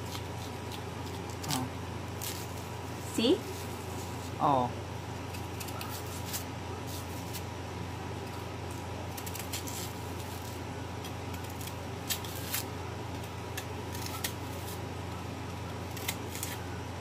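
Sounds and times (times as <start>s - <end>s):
knife scraping bark: 5.3s - 7.5s, 9.1s - 14.9s, 15.9s - 16.7s.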